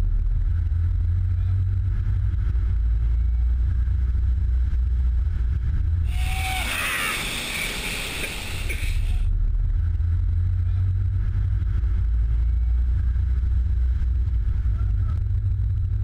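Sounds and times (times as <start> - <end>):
vehicle low rumble: 0.0 - 16.0
person crying out: 6.1 - 7.8
spraying water rush: 6.1 - 9.2.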